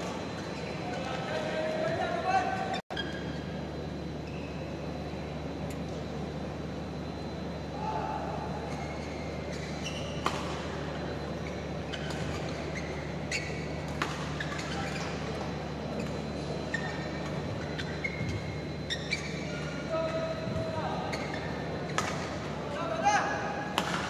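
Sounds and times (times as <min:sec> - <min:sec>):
shoes squeaking on court floor: 0:00.0 - 0:05.0, 0:08.6 - 0:22.6
steady hall hum: 0:00.0 - 0:24.0
racket hitting shuttlecock: 0:10.2 - 0:10.7, 0:13.8 - 0:14.3, 0:23.8 - 0:24.0.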